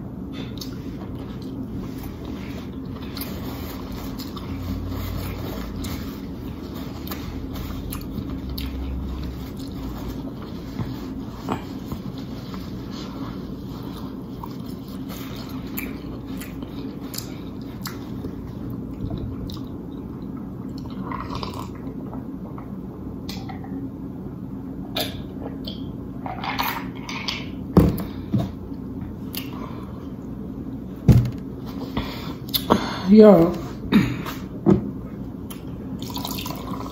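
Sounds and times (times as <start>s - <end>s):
wet chewing and lip smacking: 13.8s - 21.6s.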